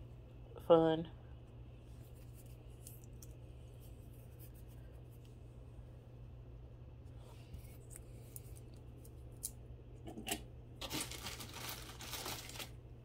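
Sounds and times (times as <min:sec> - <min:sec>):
rustling or crinkling: 0:10.8 - 0:12.8.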